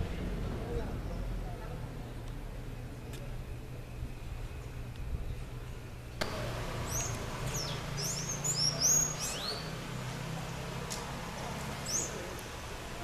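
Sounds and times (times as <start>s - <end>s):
small birds chirping: 6.8s - 12.6s.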